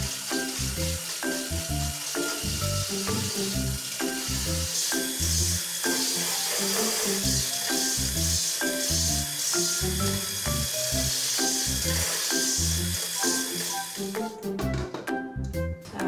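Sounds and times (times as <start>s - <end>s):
electric hand mixer whisking: 0.0s - 14.6s
background music with a beat: 13.2s - 16.0s.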